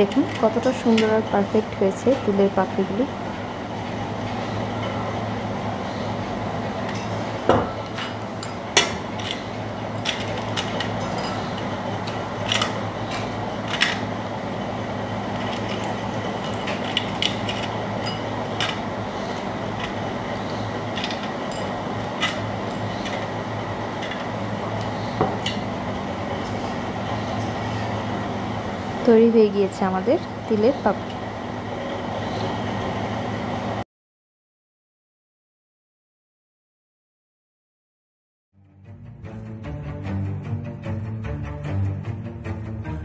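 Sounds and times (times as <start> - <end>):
low steady hum: 0.0 - 33.8.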